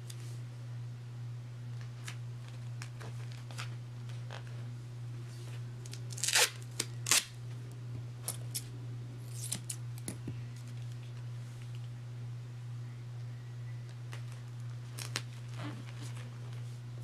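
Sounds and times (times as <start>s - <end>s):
tape crackling: 1.7s - 4.7s, 5.5s - 11.9s, 13.8s - 17.0s
tape ripping: 5.8s - 7.4s, 14.1s - 16.3s.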